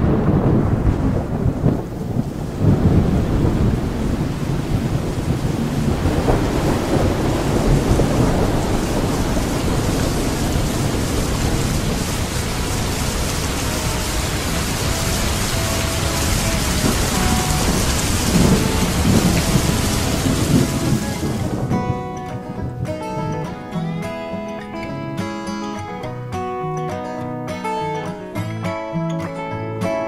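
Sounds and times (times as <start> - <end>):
low thunder rumbles: 0.0 - 23.7
heavy rain: 0.0 - 24.9.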